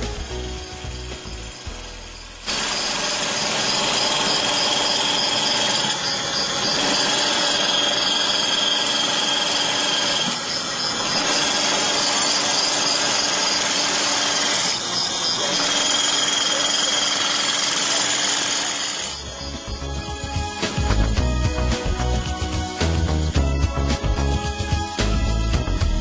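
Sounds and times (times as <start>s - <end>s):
high-pitched machine whines: 0.0s - 21.2s
printing machine running: 2.5s - 19.7s.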